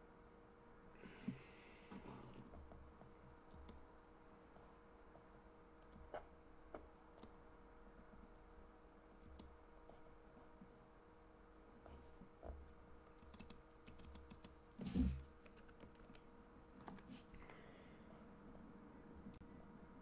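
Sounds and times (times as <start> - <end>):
faint steady hum: 0.0 - 20.0
computer keyboard clicks: 9.1 - 9.5, 13.1 - 14.6, 15.4 - 17.1.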